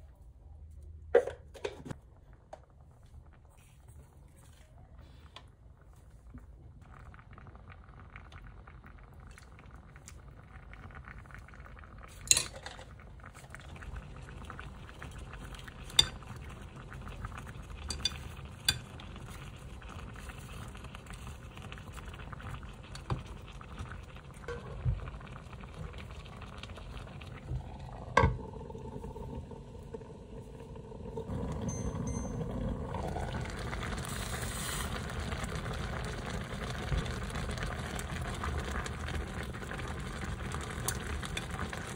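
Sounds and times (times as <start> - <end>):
pot bubbling: 5.6 - 41.9
utensils clinking on cookware: 12.3 - 12.8, 17.9 - 18.8.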